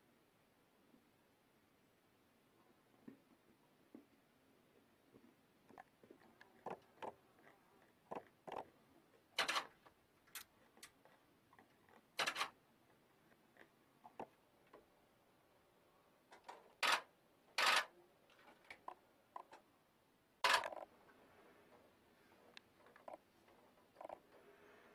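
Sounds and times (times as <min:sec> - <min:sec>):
faint clicks and snaps: 0:10.2 - 0:12.1.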